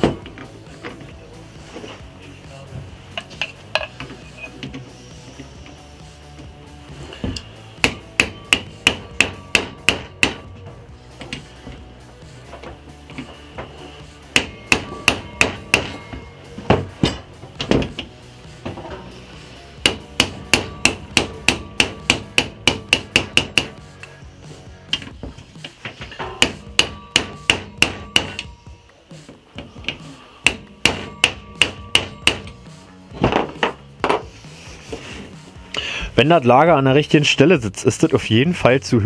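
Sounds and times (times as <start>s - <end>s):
hammer knocking on metal: 7.8s - 10.6s, 14.3s - 18.1s, 19.8s - 23.8s, 26.2s - 28.5s, 29.8s - 32.6s.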